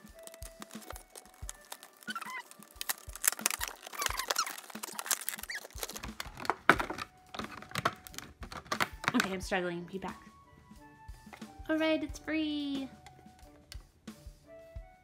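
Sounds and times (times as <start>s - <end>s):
plastic packaging crinkling: 0.0s - 9.3s
plastic rubbing squeaks: 0.0s - 9.3s.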